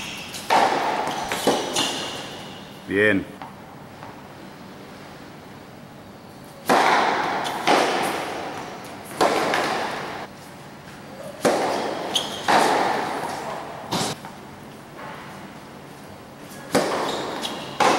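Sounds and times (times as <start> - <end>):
tennis ball bouncing on court: 0.0 - 2.5, 6.6 - 10.3, 11.4 - 14.4, 16.7 - 17.9
tennis ball struck by racquets: 0.0 - 2.6, 6.6 - 10.3, 11.4 - 14.2, 16.7 - 17.9.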